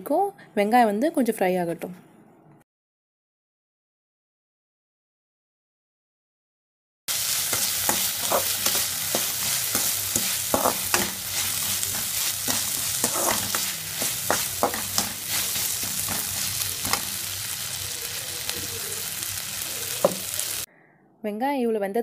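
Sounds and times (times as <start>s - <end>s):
food sizzling in oil: 7.1s - 20.7s
ladle scraping metal pan: 7.5s - 17.2s.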